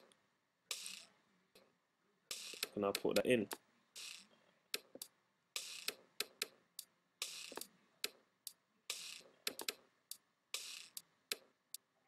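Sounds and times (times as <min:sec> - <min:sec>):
hissy snare hits: 0:00.7 - 0:01.1, 0:02.3 - 0:05.0, 0:05.6 - 0:06.5, 0:07.2 - 0:07.7, 0:08.9 - 0:09.8, 0:10.6 - 0:11.4
sampled drum loop: 0:00.7 - 0:01.2, 0:02.3 - 0:11.6
sharp clicks: 0:02.3 - 0:06.6, 0:08.9 - 0:09.8.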